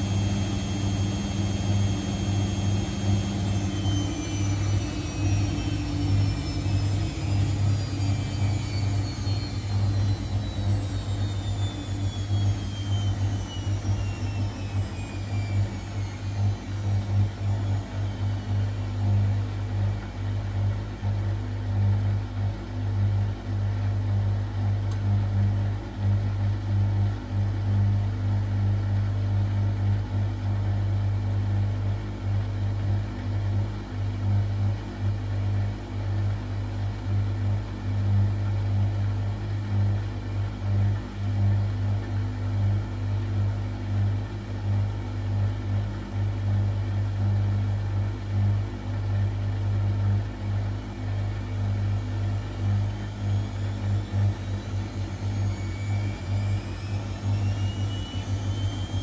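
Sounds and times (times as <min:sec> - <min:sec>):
motor whine: 0:00.0 - 0:21.4, 0:49.2 - 0:59.0
washing machine running: 0:00.0 - 0:59.0.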